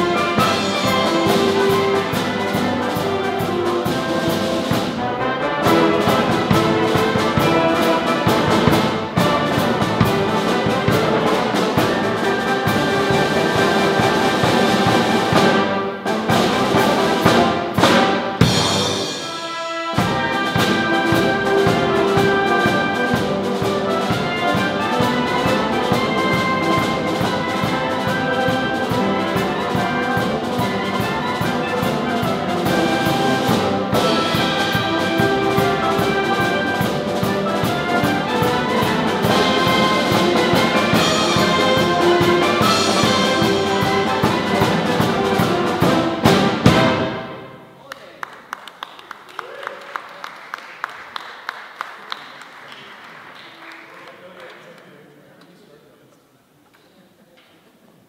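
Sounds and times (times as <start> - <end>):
concert band playing: 0.0 - 47.8
drum beat: 5.6 - 19.3.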